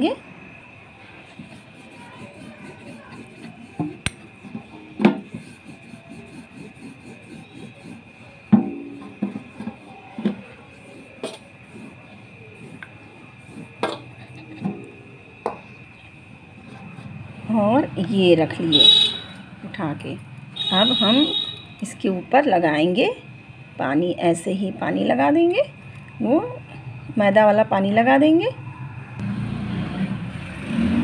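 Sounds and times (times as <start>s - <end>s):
rolling pin rubbing dough: 1.1s - 8.5s, 9.2s - 14.7s
rolling pin knocking on metal: 8.5s - 10.4s.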